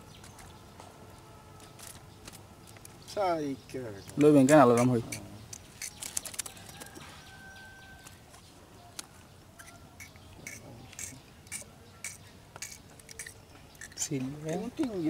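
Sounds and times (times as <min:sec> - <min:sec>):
small clicks of fish handling: 0:05.5 - 0:07.0.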